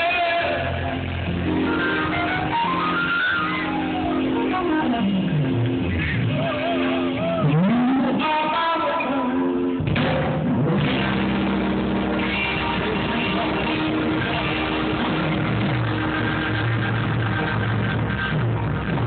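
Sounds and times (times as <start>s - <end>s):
electric guitar bending notes: 0.0s - 19.0s
live rock band: 0.0s - 19.0s.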